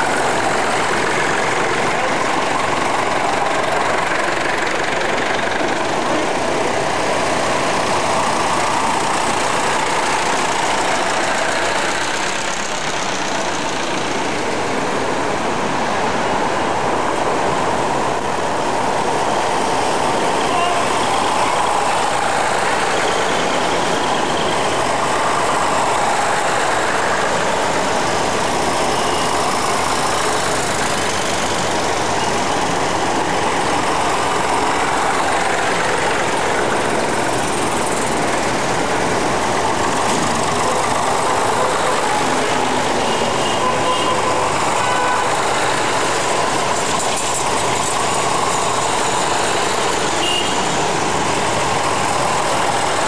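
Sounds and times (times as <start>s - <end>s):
tractors and motorcycles driving past: 18.9s - 53.0s.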